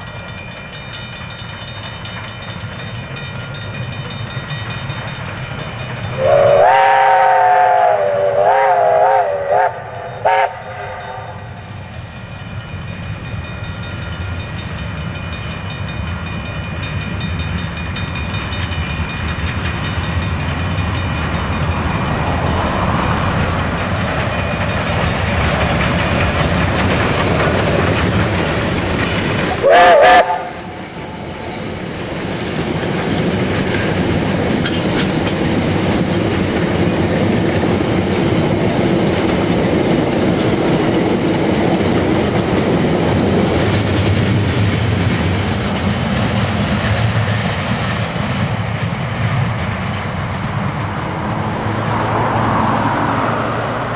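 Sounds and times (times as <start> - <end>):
train rumbling past: 0.0 - 53.9
steam locomotive whistle: 6.1 - 11.7, 29.5 - 31.3.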